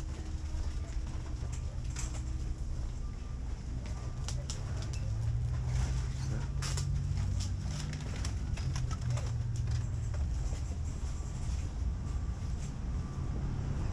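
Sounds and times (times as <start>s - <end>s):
low steady hum: 0.0s - 13.9s
light clicks and rustles: 3.8s - 11.7s.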